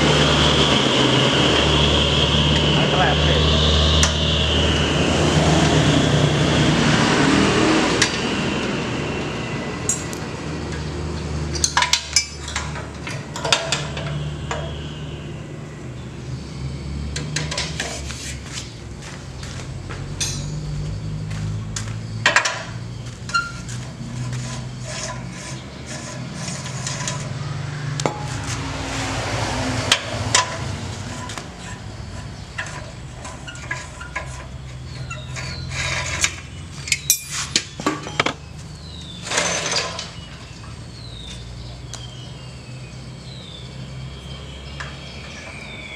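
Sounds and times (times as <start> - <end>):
metal tools clinking and knocking: 11.5 - 13.9, 20.2 - 20.8, 31.1 - 38.4.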